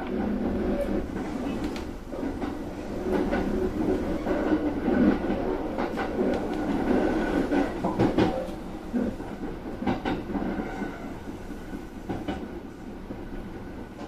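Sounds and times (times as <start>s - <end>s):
train rumble: 0.0s - 14.0s.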